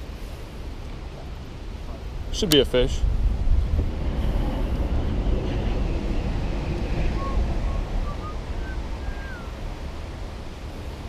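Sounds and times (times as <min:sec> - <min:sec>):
wind rumbling on microphone: 0:00.0 - 0:11.0
high whistled notes: 0:07.1 - 0:09.6.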